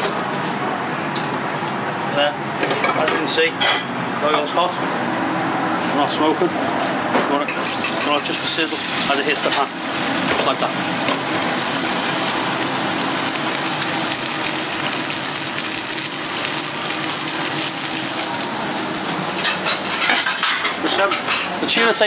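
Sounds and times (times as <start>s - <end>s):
fish sizzling in hot oil: 8.4s - 20.6s.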